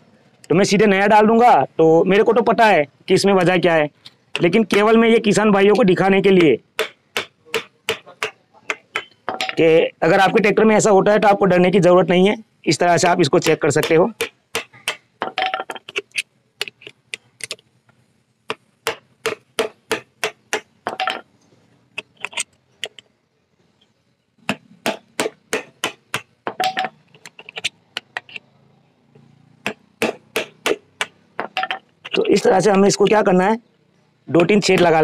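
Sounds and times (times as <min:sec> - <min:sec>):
hammer striking metal oil filter: 0:05.7 - 0:09.7, 0:13.0 - 0:15.6.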